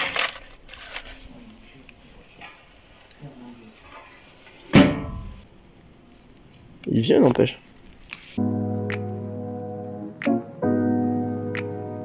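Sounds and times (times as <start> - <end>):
rummaging through papers: 0.0 - 4.4, 6.1 - 8.4.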